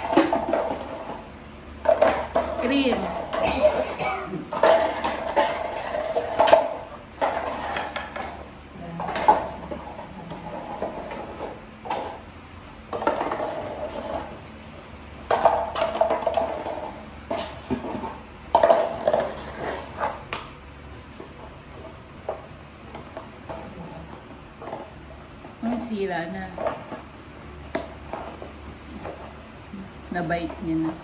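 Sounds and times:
plastic toy clattering on tiles: 0:00.0 - 0:01.2, 0:01.8 - 0:03.9, 0:04.5 - 0:08.4, 0:09.0 - 0:12.2, 0:12.9 - 0:14.4, 0:15.3 - 0:20.3.

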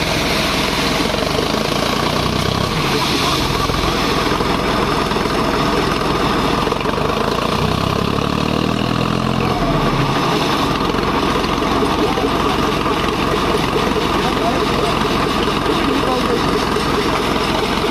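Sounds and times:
tractor diesel engine running: 0:00.0 - 0:17.9
water jet spraying: 0:02.6 - 0:04.5.

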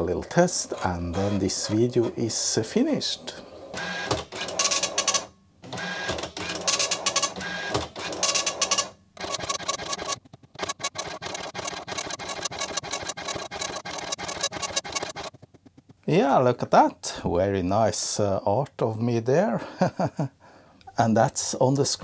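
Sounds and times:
dot matrix printer printing: 0:00.6 - 0:02.2, 0:03.5 - 0:15.4.

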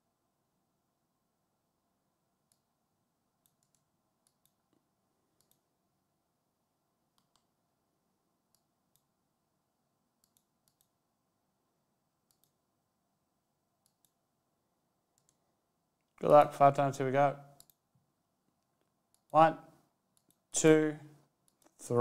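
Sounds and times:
computer mouse clicks: 0:02.5 - 0:02.7, 0:03.4 - 0:04.8, 0:05.4 - 0:05.7, 0:07.1 - 0:07.5, 0:08.5 - 0:09.1, 0:10.2 - 0:11.0, 0:12.2 - 0:12.6, 0:13.8 - 0:14.2, 0:15.1 - 0:15.4, 0:17.5 - 0:17.9, 0:20.1 - 0:20.5, 0:21.4 - 0:21.8.

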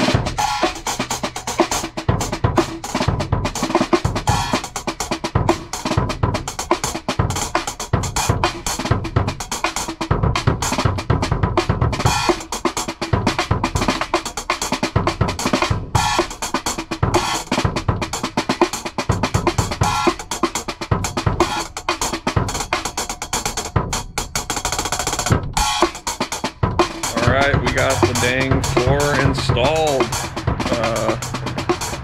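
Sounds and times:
bass drum: 0:00.0 - 0:14.2, 0:14.8 - 0:21.7, 0:23.7 - 0:32.0
snare drum: 0:00.0 - 0:32.0.

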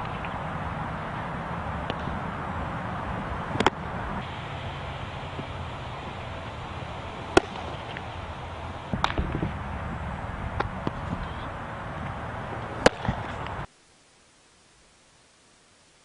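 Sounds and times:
outdoor hiss: 0:00.0 - 0:16.0
baseball smacks: 0:03.5 - 0:03.9, 0:07.2 - 0:08.2, 0:08.9 - 0:09.6, 0:12.0 - 0:13.6.

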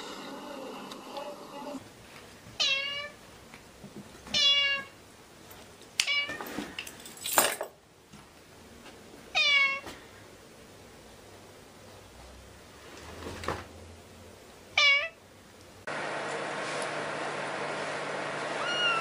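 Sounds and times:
cat meowing: 0:02.6 - 0:03.2, 0:04.3 - 0:05.0, 0:09.3 - 0:09.8, 0:14.8 - 0:15.2, 0:18.6 - 0:19.0.

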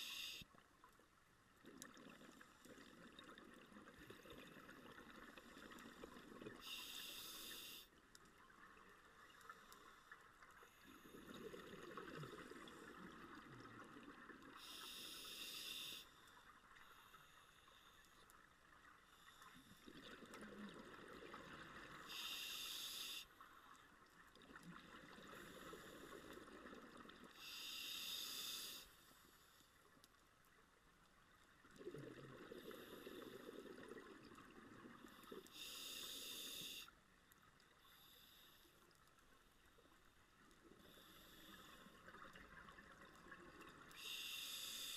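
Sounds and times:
regulator inhalations: 0:00.0 - 0:00.5, 0:06.6 - 0:07.9, 0:14.6 - 0:16.2, 0:22.1 - 0:23.3, 0:27.4 - 0:29.2, 0:35.3 - 0:36.9, 0:44.0 - 0:44.9.

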